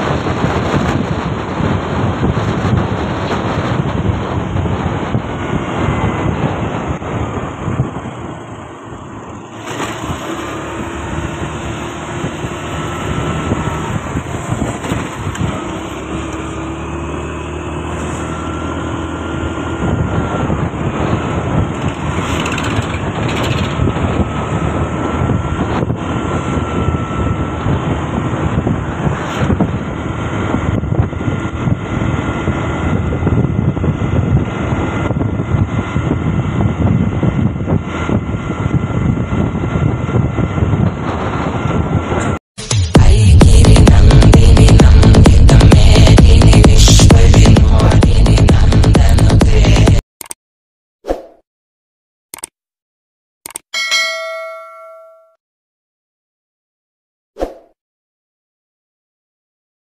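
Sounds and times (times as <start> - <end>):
motorcycle engine running: 0.0 - 50.0
wind noise on microphone: 0.0 - 50.0.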